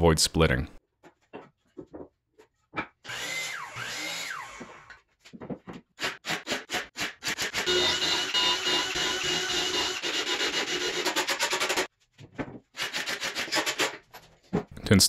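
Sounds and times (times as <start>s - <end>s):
cordless drill drilling into board: 3.1s - 4.9s, 6.0s - 11.9s.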